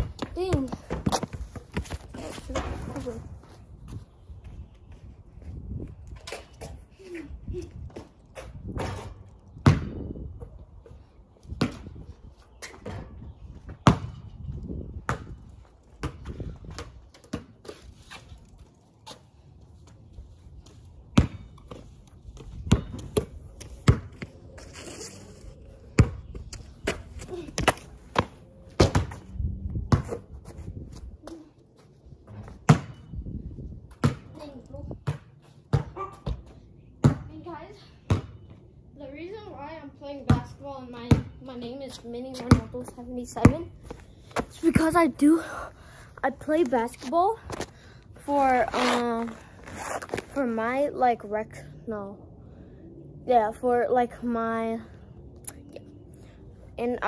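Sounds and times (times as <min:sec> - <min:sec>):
basketball bouncing on concrete: 0:00.0 - 0:03.0, 0:08.4 - 0:10.1, 0:13.8 - 0:14.2, 0:15.0 - 0:17.6, 0:21.2 - 0:24.3, 0:27.6 - 0:29.2, 0:29.9 - 0:30.2, 0:32.4 - 0:33.0, 0:33.9 - 0:34.4, 0:35.0 - 0:37.4, 0:38.1 - 0:38.5, 0:40.2 - 0:41.5, 0:42.1 - 0:45.2.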